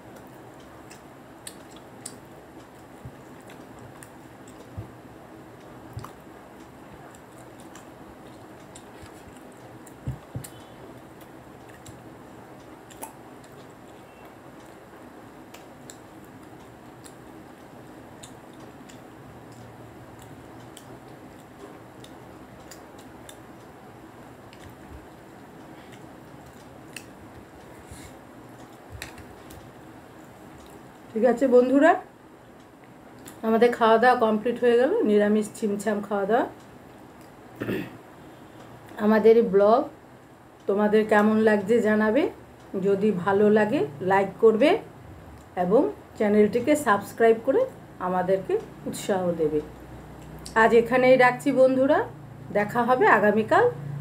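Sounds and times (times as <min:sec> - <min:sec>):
low background noise: 0:00.0 - 0:54.0
chewing: 0:00.2 - 0:04.8, 0:05.9 - 0:06.3, 0:07.0 - 0:17.2, 0:24.5 - 0:30.8.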